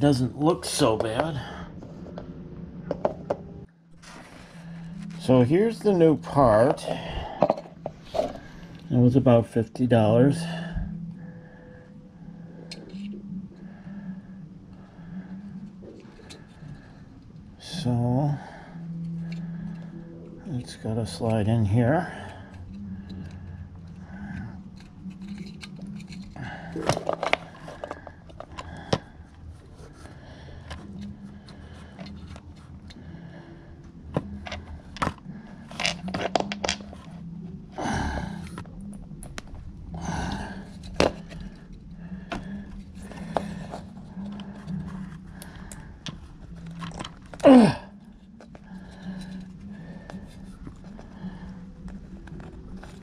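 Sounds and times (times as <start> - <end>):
heavy breathing: 0.4 - 3.1, 3.9 - 9.1, 10.3 - 20.8, 21.9 - 53.0
hard plastic clicks and scrapes: 22.5 - 29.1, 34.1 - 37.1
plastic clicking and scraping: 22.5 - 33.1, 34.1 - 37.2, 40.6 - 47.5, 48.1 - 53.0.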